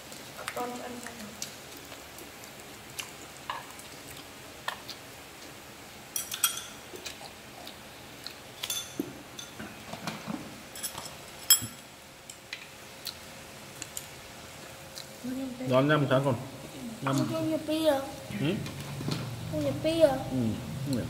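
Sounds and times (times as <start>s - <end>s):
faint steady hiss: 0.0s - 21.0s
chopsticks and spoons clinking bowls: 6.2s - 6.8s, 8.6s - 9.6s, 10.7s - 11.9s.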